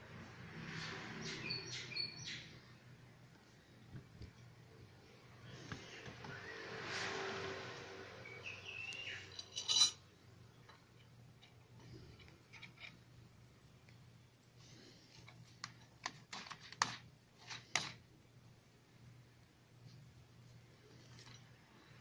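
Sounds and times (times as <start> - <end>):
metal clatter: 9.3 - 10.0.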